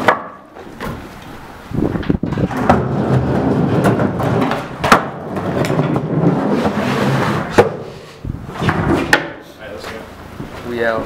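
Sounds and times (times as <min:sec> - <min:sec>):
skateboard wooden knocks: 0:00.0 - 0:01.0, 0:02.0 - 0:07.9, 0:08.6 - 0:09.4
skateboard wheels rumbling on plywood: 0:01.8 - 0:09.3.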